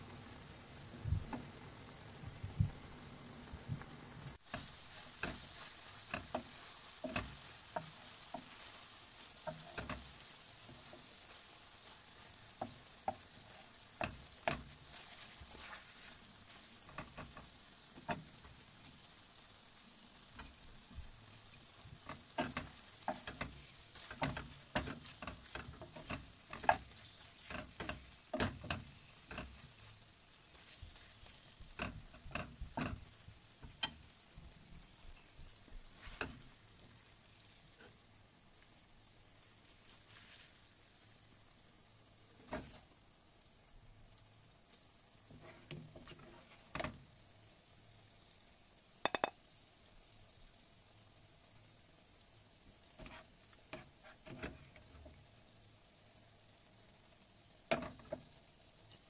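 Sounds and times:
food sizzling in a frying pan: 0:00.0 - 0:59.0
wooden spoon knocking on pan: 0:04.4 - 0:08.7, 0:09.4 - 0:11.1, 0:12.4 - 0:15.2, 0:16.6 - 0:18.6, 0:21.9 - 0:29.7, 0:31.6 - 0:34.4, 0:49.0 - 0:49.4.

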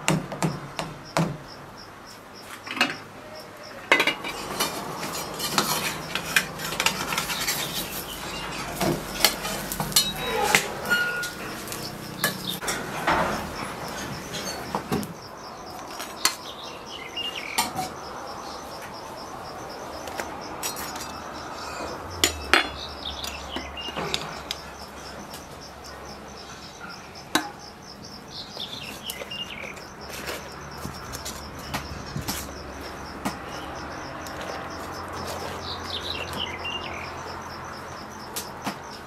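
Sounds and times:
high insect trill: 0:00.5 - 0:39.0
metal spatula scraping cookware: 0:03.9 - 0:14.8.

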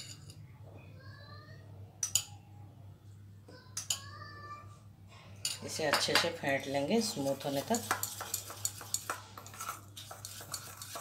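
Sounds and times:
steel spoon clinking against bowls: 0:02.0 - 0:02.4, 0:07.2 - 0:11.0.

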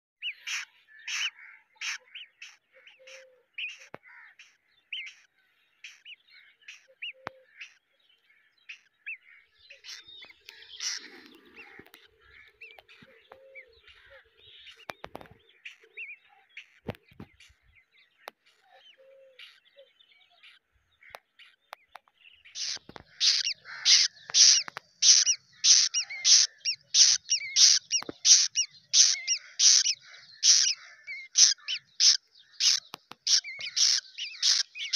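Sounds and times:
crow nestlings begging calls: 0:00.2 - 0:07.8, 0:08.6 - 0:14.9, 0:22.5 - 0:34.9.

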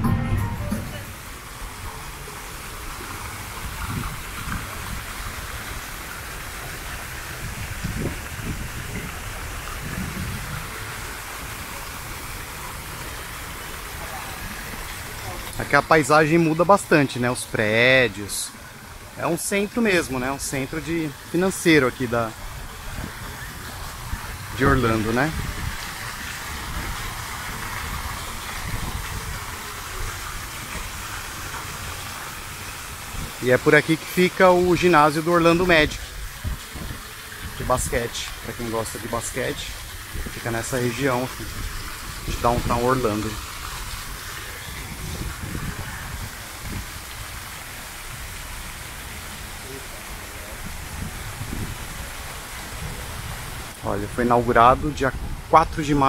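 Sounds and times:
rushing water: 0:00.0 - 0:56.0
traffic hiss: 0:00.7 - 0:56.0
wind rumble on microphone: 0:03.5 - 0:05.9, 0:06.9 - 0:11.7, 0:22.4 - 0:31.0, 0:35.8 - 0:38.1, 0:41.4 - 0:47.4, 0:50.4 - 0:55.9.

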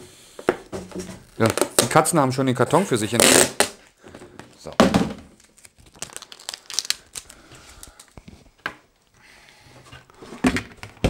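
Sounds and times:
packaging crinkling and rustling: 0:04.5 - 0:08.5.

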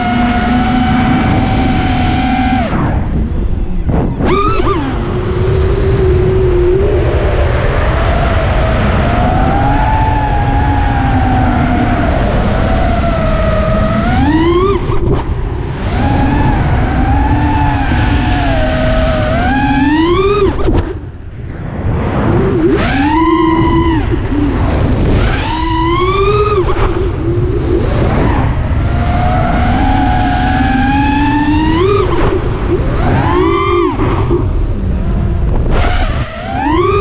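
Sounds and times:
drone motors whining: 0:00.0 - 0:37.0.

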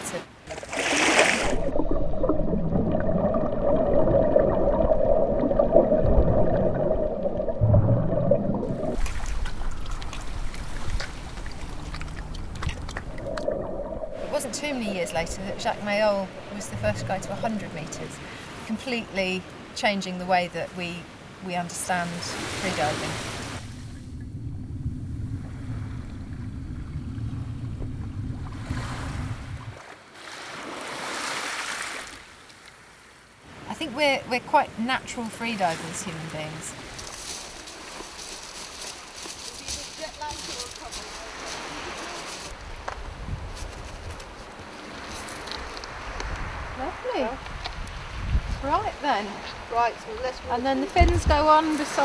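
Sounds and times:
gurgling water: 0:00.5 - 0:18.7, 0:22.7 - 0:29.9
underwater rumble with hum: 0:01.4 - 0:18.2, 0:23.4 - 0:29.8.

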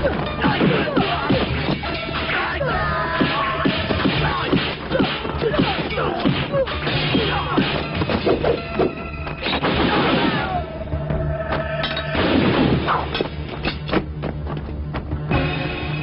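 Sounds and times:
dramatic music: 0:00.0 - 0:16.0
punch and kick sound effects: 0:03.2 - 0:06.5, 0:09.4 - 0:10.6, 0:12.2 - 0:13.0.

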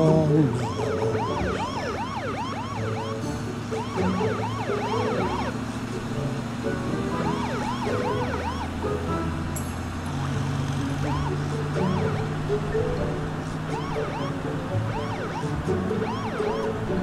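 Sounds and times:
cartoon police siren yelps: 0:00.0 - 0:05.6, 0:07.0 - 0:09.0, 0:11.0 - 0:13.1, 0:13.7 - 0:17.0
background music: 0:00.0 - 0:17.0.

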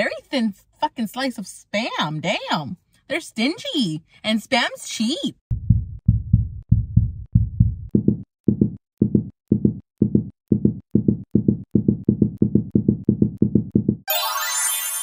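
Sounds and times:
low drum beat: 0:05.5 - 0:14.0.

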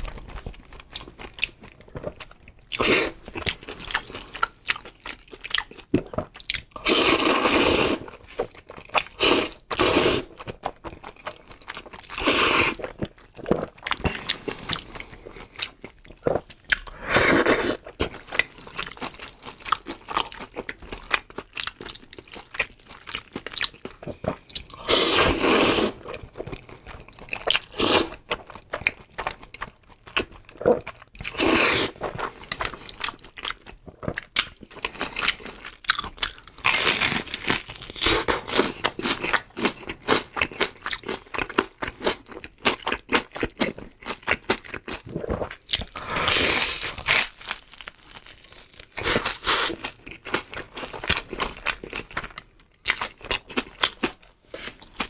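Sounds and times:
chewing and crunching: 0:00.0 - 0:07.4, 0:08.0 - 0:17.0, 0:17.7 - 0:25.2, 0:26.0 - 0:55.0
noodles slurped: 0:16.3 - 0:18.1, 0:24.8 - 0:26.0.

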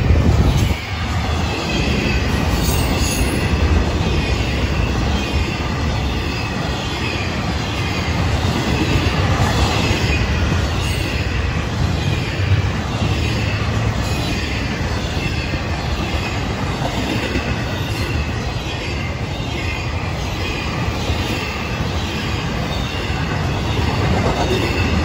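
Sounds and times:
freight train wheels rumbling on rails: 0:00.0 - 0:25.0.

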